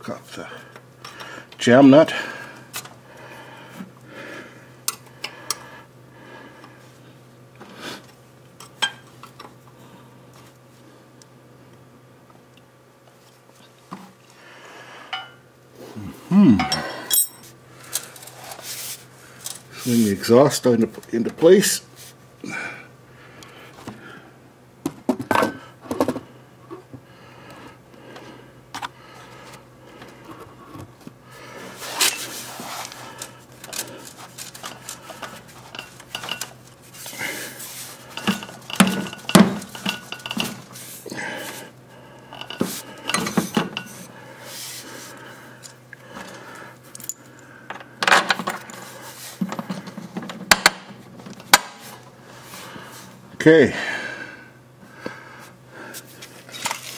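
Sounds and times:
metallic clinks of tools and parts: 16.6 - 18.2.

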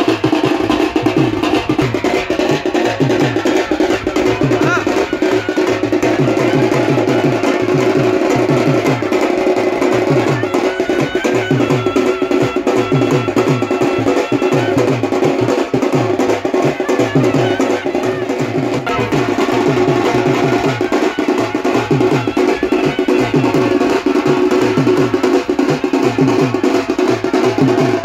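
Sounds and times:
rhythmic drumming: 0.0 - 28.0
loud music: 16.4 - 28.0.

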